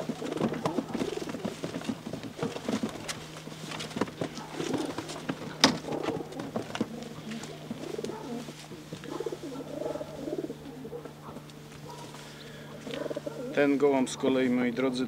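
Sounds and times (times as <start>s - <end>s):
wooden crate knocks and clicks: 0.0s - 7.0s
pigeons cooing: 0.0s - 14.4s.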